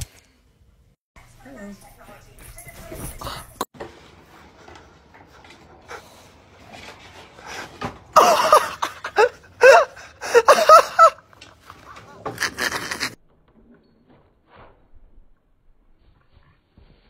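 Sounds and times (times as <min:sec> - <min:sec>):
person laughing: 0:08.2 - 0:11.3.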